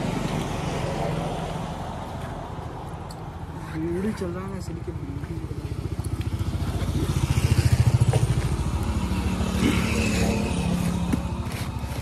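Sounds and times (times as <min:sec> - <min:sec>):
motorcycle engine idling: 0:05.1 - 0:09.6.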